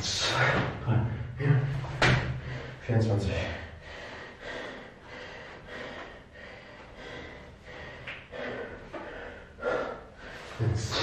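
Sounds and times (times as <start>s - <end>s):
man panting heavily: 2.4s - 11.0s.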